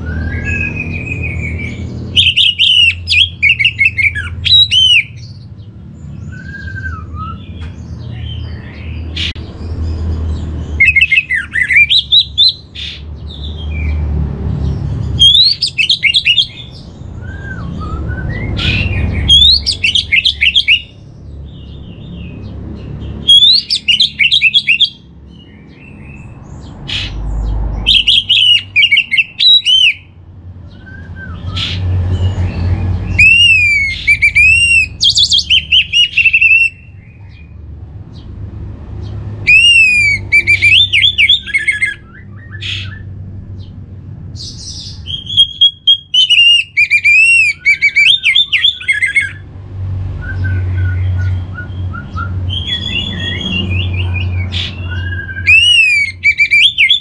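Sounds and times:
thrush singing whistled phrases: 0.0s - 5.4s, 6.2s - 7.6s, 10.8s - 12.7s, 15.2s - 21.0s, 23.2s - 25.0s, 27.8s - 31.8s, 33.0s - 37.0s, 39.4s - 43.1s, 44.8s - 49.4s, 50.2s - 57.0s.

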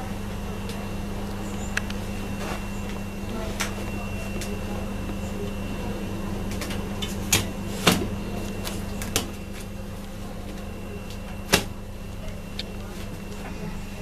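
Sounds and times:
appliance hum: 0.0s - 14.0s.

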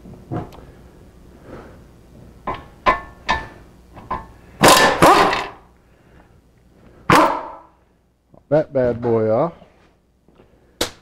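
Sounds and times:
air impact wrench hammering: 2.5s - 5.6s.

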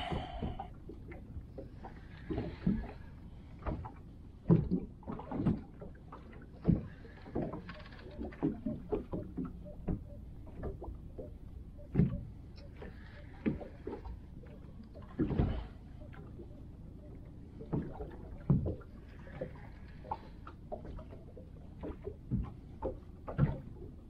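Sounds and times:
steady low rumble: 0.0s - 1.8s
water slapping boat hull: 0.0s - 24.0s.

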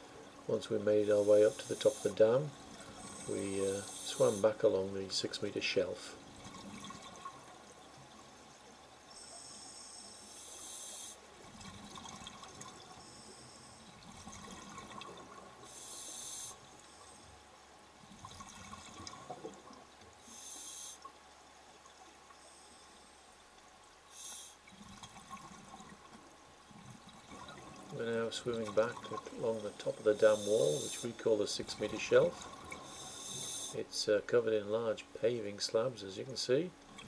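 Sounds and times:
regulator breathing hiss: 1.0s - 2.2s, 2.8s - 4.5s, 9.1s - 11.2s, 13.0s - 13.8s, 15.7s - 17.3s, 20.2s - 21.1s, 24.1s - 24.6s, 29.9s - 31.2s, 32.8s - 33.8s.

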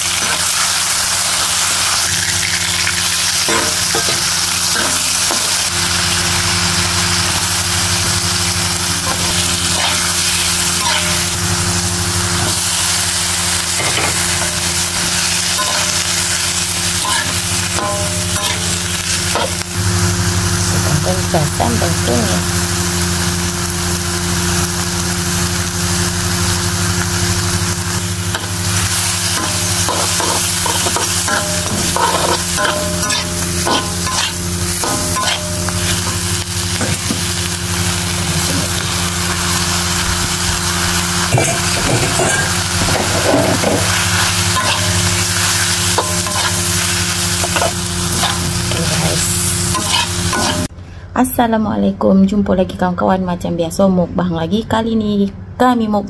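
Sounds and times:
food sizzling in a wok: 0.0s - 50.7s
steady low hum: 3.3s - 56.0s
metal spatula scraping a wok: 9.0s - 11.4s, 13.7s - 19.6s, 28.3s - 37.3s, 41.3s - 50.7s.

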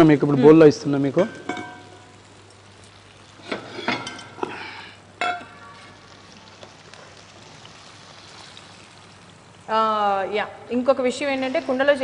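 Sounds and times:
faint steady sizzle: 0.0s - 12.0s
ladle scraping and clinking: 3.4s - 4.5s.

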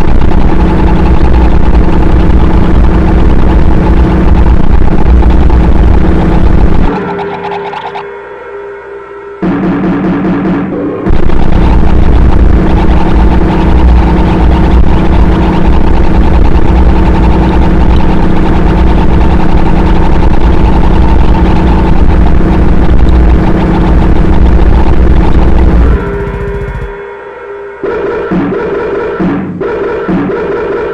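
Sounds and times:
deep rumble: 0.0s - 8.1s, 9.4s - 29.7s
held tones: 0.0s - 9.9s
harsh distorted noise music: 0.0s - 30.9s.

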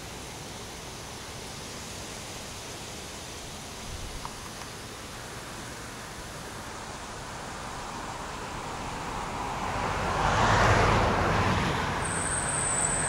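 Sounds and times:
car passing: 5.7s - 13.0s.

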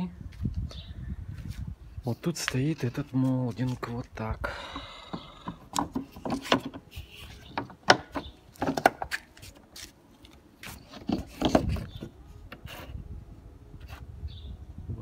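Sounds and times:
handling clicks and taps: 5.1s - 9.3s.

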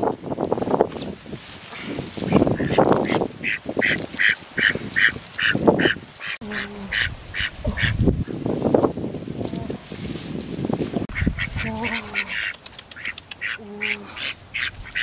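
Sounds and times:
leaves and grass rustling: 0.0s - 15.0s
ducks quacking: 2.2s - 8.0s, 11.1s - 15.0s.

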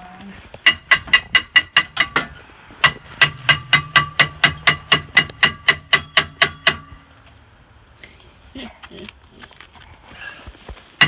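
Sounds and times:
low steady hum: 0.0s - 9.4s
hammer blows on metal: 0.6s - 7.1s.

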